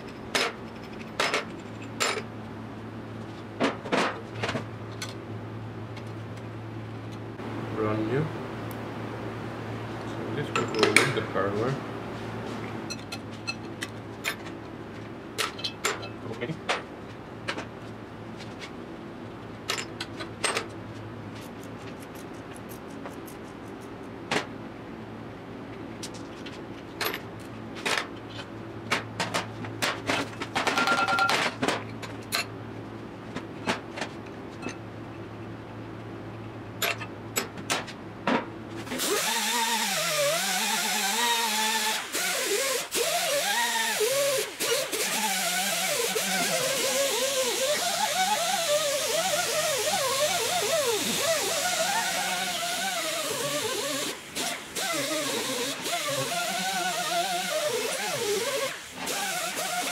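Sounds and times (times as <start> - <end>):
steady low hum: 0.0 - 39.0
wrenches clinking on metal workbench: 10.5 - 11.2, 15.4 - 16.2.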